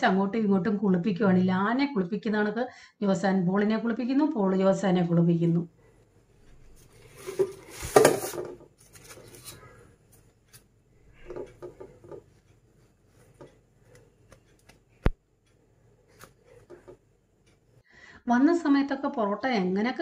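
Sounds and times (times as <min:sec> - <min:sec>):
paper rustling: 0:06.7 - 0:09.8.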